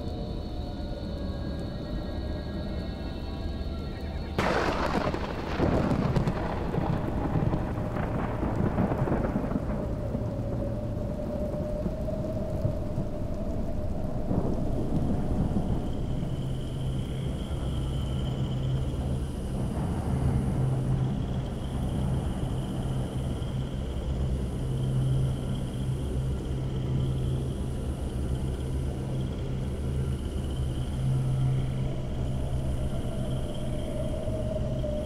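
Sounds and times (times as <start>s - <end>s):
faint steady tones: 0.0s - 35.0s
steady rain: 0.0s - 35.0s
thunder rumbling: 4.4s - 25.4s.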